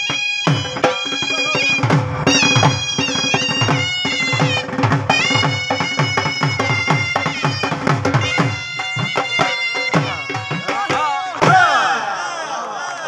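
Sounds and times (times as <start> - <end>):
dhol drums beating: 0.0 - 12.0
shehnai pipes: 0.0 - 12.1
man speaking: 1.2 - 1.8.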